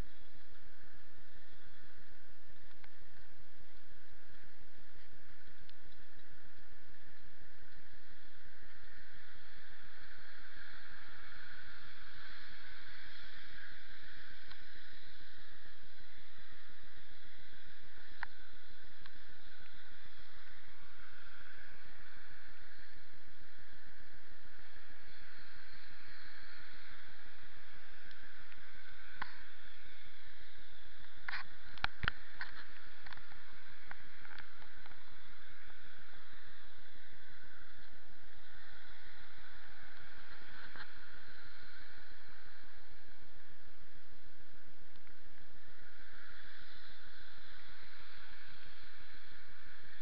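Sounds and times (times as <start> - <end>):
steady outdoor hiss: 0.0 - 50.0
faint click: 2.5 - 8.0, 14.3 - 14.9, 18.0 - 19.8, 31.0 - 35.7, 44.9 - 45.2.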